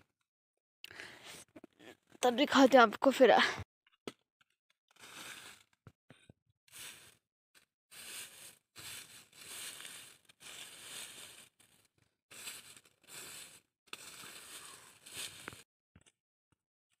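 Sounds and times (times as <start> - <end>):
pine needles rustling and crunching: 7.9 - 11.5, 12.3 - 15.6.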